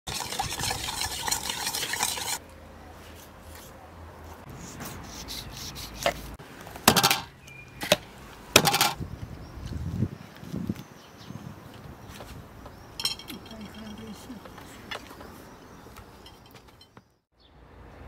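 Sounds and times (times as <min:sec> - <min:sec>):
stirring in a bowl: 0:00.1 - 0:02.4, 0:13.0 - 0:14.5.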